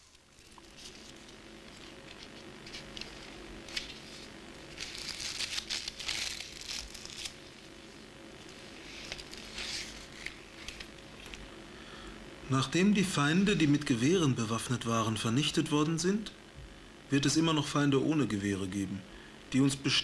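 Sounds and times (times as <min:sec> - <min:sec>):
paper pages rustling: 0:00.0 - 0:07.7, 0:08.4 - 0:11.4
faint steady hum: 0:00.0 - 0:20.0.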